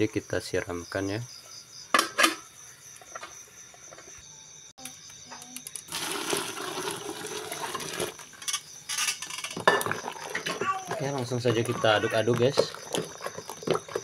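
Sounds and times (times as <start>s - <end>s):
water pouring into bucket: 5.9s - 8.4s, 9.8s - 14.0s.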